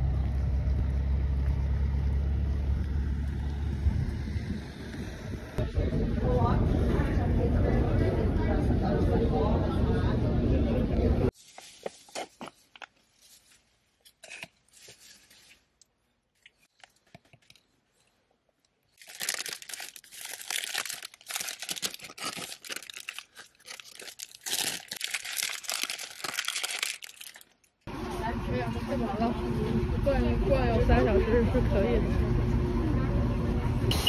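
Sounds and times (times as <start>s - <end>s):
paper wrapping crinkling and tearing: 11.3s - 15.8s, 18.9s - 27.9s.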